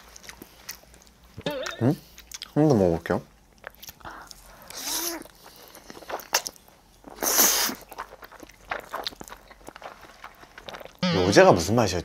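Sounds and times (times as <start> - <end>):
person chewing noodles: 0.0 - 2.6, 3.4 - 11.1
noodle slurp: 4.7 - 5.3, 7.2 - 8.2.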